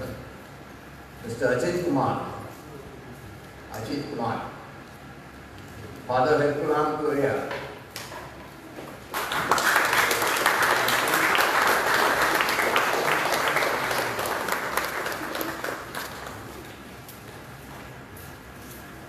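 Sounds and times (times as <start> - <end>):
audience applauding: 9.1 - 16.7.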